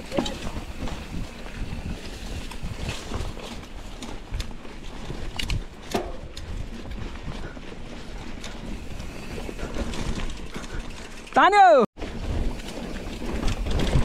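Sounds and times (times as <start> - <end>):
wind buffeting microphone: 0.0 - 11.0
bike knocks and rattles: 0.0 - 11.3, 12.0 - 14.0
tyres rumbling on dirt: 0.0 - 14.0.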